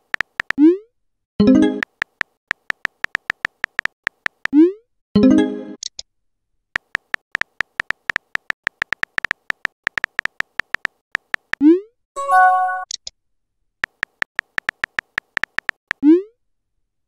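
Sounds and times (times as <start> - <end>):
keyboard tap clicks: 0.0 - 0.6, 1.8 - 4.5, 6.8 - 11.6, 13.8 - 16.0
short message chime: 12.2 - 12.9.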